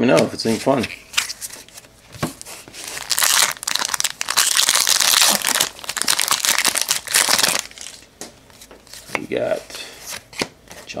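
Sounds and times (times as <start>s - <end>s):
plastic wrapper tearing and rustling: 2.4s - 8.1s.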